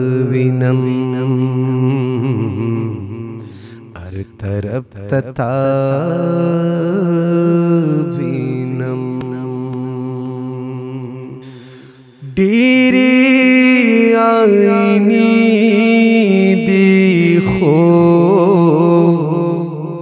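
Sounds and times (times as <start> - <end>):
person singing ornamented phrases: 0.0 - 11.5, 12.2 - 20.0.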